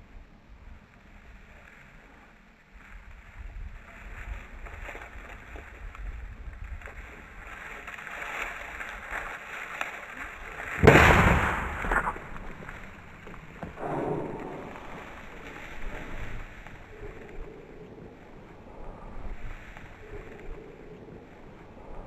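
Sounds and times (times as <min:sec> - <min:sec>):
wind buffeting microphone: 0:03.0 - 0:09.3, 0:10.3 - 0:22.0
shotgun shot: 0:10.8 - 0:12.2.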